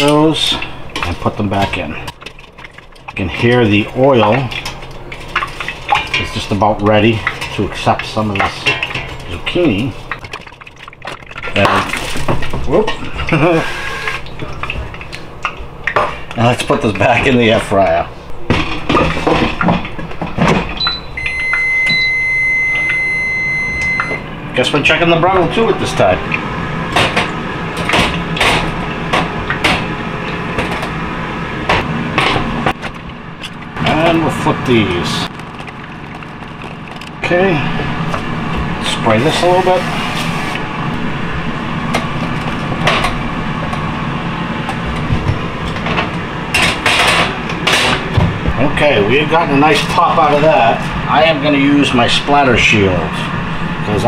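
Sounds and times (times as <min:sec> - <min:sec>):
air fryer basket clattering: 0:00.0 - 0:10.2, 0:14.4 - 0:22.1, 0:23.8 - 0:39.8, 0:44.6 - 0:53.1
metal tray clattering: 0:00.0 - 0:10.2
low fan hum: 0:00.0 - 0:54.0
cooking spray hissing: 0:13.3 - 0:14.3
short electronic beeps: 0:20.8 - 0:24.2
high electronic timer tone: 0:20.8 - 0:24.3.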